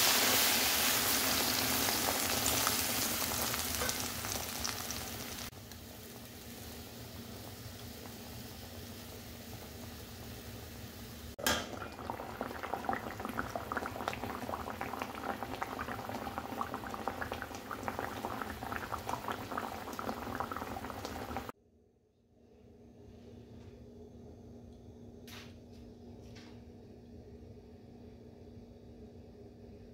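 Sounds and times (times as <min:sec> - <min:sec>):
gravy bubbling in a pan: 0:00.0 - 0:21.5.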